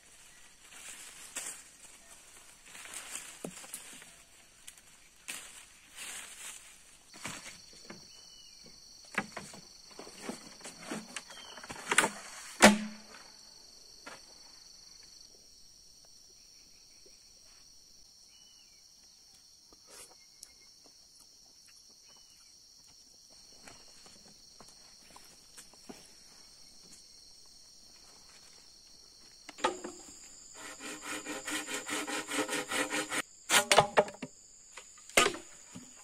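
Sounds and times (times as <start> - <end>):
sharp crack: 12.6 - 13.1
faint chirps: 16.1 - 24.1
rustles and knocks: 29.5 - 30.3.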